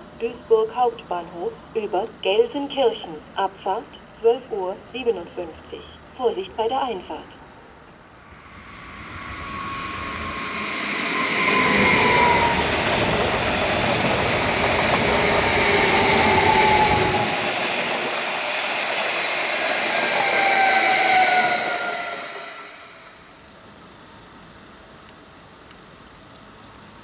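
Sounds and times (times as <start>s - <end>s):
train wheels rumbling on track: 8.2s - 23.4s.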